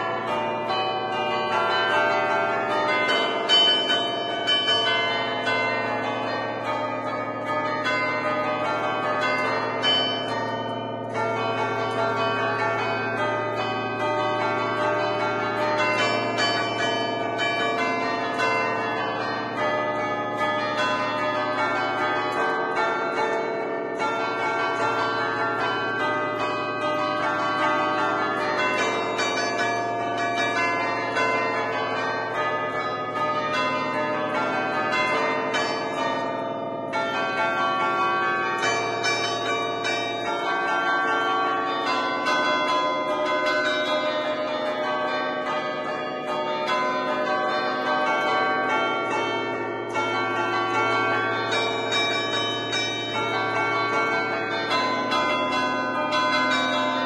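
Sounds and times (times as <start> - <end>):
chime bells ringing: 24.0 - 57.0.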